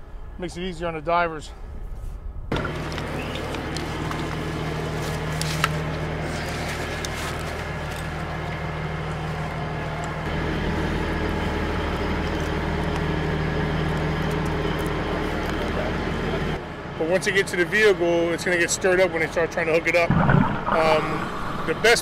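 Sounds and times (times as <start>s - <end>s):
vehicle engine idling: 2.5s - 20.0s.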